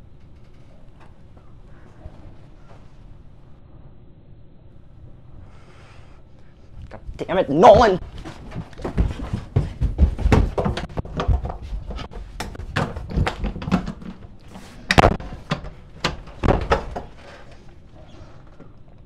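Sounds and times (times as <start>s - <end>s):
irregular thumps and bangs: 6.9s - 17.3s.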